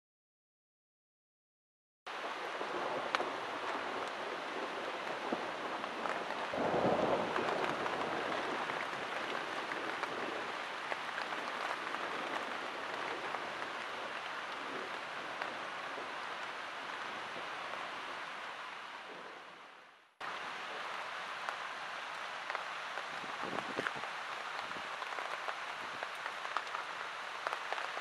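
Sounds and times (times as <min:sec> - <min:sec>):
rain on a tent: 0:02.1 - 0:28.0
low rumble of thunder: 0:02.2 - 0:16.2.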